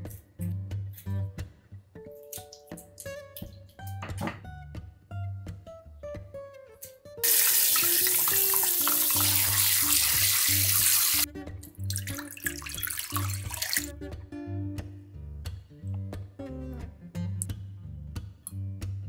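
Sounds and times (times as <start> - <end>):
tap spraying water into sink: 7.2 - 11.3, 11.9 - 13.9
water poured into pan: 7.2 - 11.3, 11.9 - 13.9.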